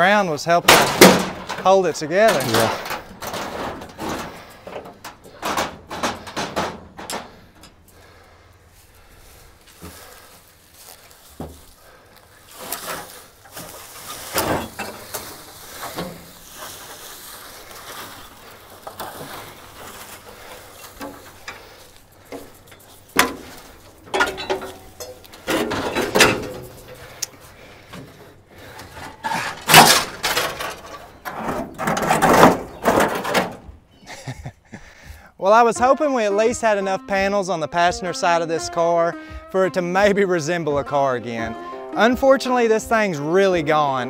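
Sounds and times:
metal panels scraping and clunking: 0:00.0 - 0:34.0
metal banging: 0:00.5 - 0:34.0.

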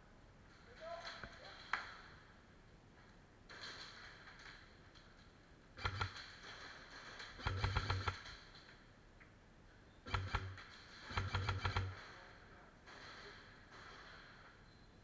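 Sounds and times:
airsoft rifle bursts: 0:05.8 - 0:08.5, 0:10.1 - 0:14.4.

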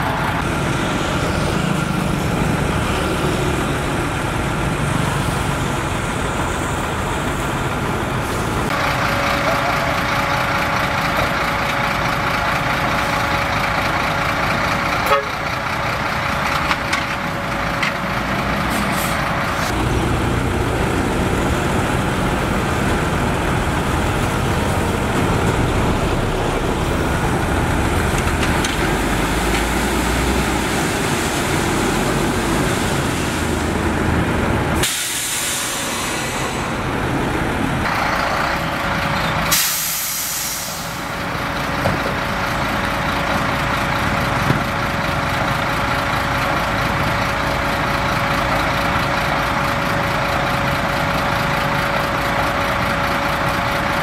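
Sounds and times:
truck diesel engines running: 0:00.0 - 0:54.0
air brake hiss: 0:34.8 - 0:36.8, 0:39.5 - 0:41.1.

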